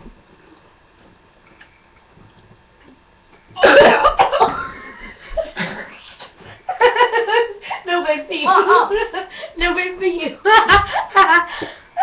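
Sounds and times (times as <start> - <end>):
person coughing and spluttering: 3.6 - 4.5.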